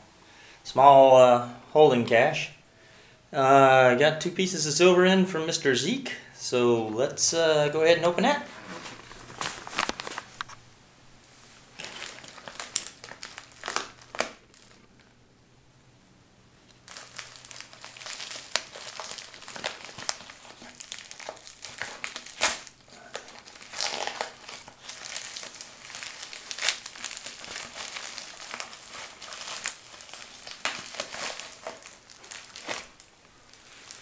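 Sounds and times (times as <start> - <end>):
packaging crinkling and crackling: 8.5 - 10.6, 11.7 - 15.2, 16.6 - 34.0.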